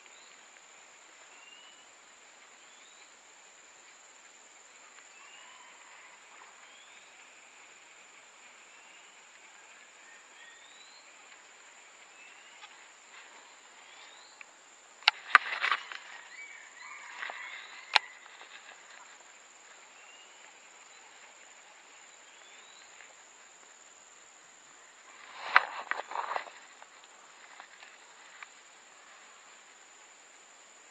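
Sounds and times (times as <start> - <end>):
high-pitched insect whine: 2.6 - 30.9
rustle of handling: 11.0 - 21.5, 25.0 - 29.8.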